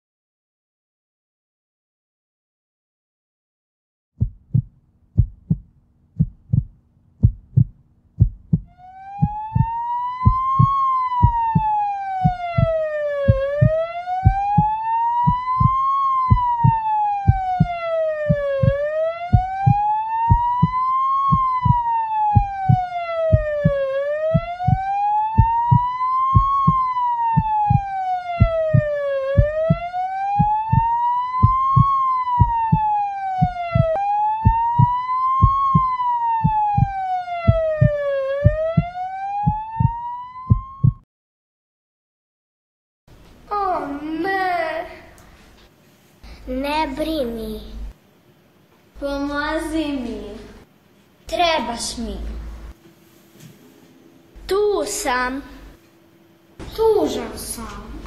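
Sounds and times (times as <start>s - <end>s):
heartbeat thumps: 4.2s - 41.0s
ambulance siren wailing: 8.7s - 41.0s.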